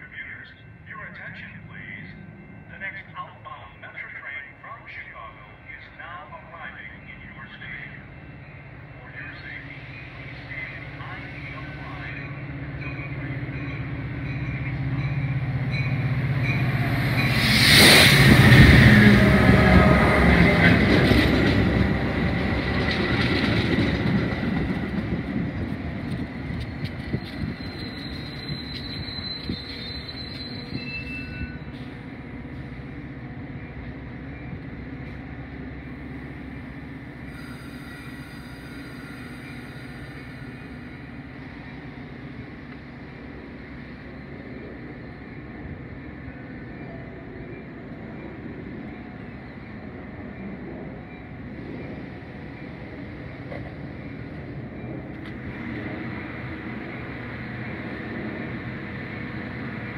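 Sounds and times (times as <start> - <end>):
diesel locomotive engine drone: 0.0 - 59.9
train wheels rushing past: 12.6 - 32.9.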